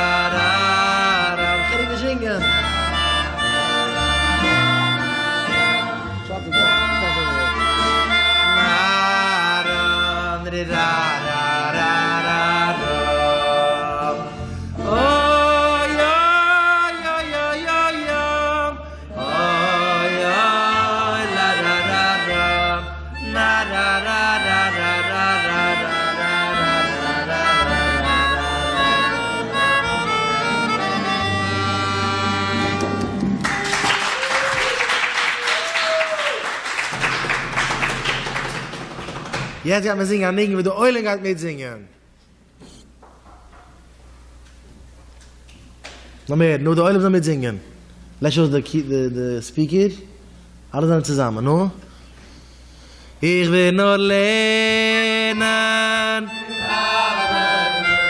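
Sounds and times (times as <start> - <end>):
melodica playing a melody: 0.0 - 33.3, 54.5 - 58.0.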